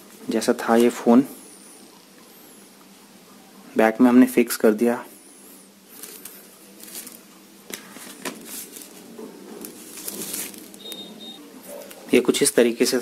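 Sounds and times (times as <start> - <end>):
rustling: 5.3 - 12.2.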